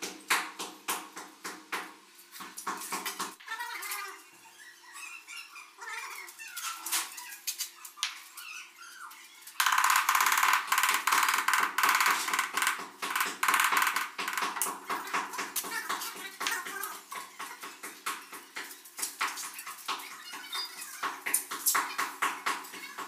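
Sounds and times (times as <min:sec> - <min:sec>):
ceramic tiles clicking: 0:09.6 - 0:14.8
mallet tapping on tile: 0:09.6 - 0:16.5.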